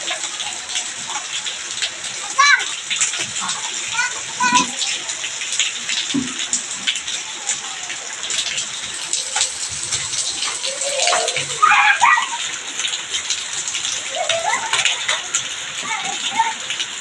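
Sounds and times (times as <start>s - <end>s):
heavy rain on concrete: 0.0s - 17.0s
child calling out: 10.6s - 12.5s, 14.0s - 14.9s, 15.8s - 16.7s.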